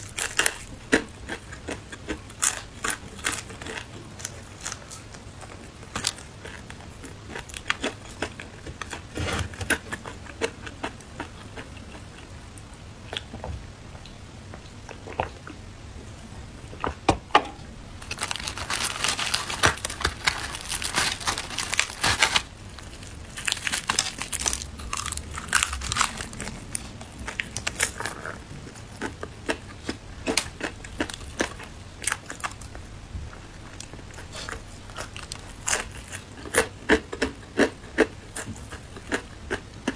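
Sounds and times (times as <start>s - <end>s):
crunching fried chicken: 0.0s - 13.4s, 18.0s - 39.9s
chicken torn apart on paper: 18.0s - 22.5s.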